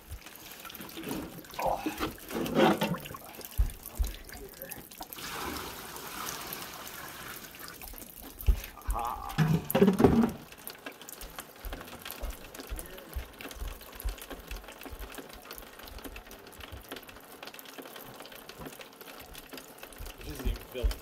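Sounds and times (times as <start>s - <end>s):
light rain pattering: 0.0s - 21.0s
water drips: 0.0s - 21.0s
soft low thumps: 3.0s - 4.6s.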